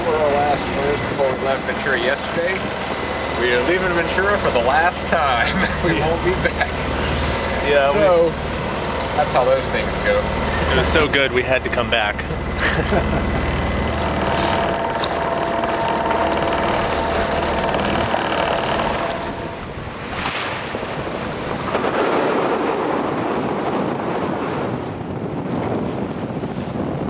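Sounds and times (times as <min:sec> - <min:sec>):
water washing along hull: 0:00.0 - 0:27.0
wind buffeting microphone: 0:00.0 - 0:27.0
splash of spray: 0:20.0 - 0:23.0.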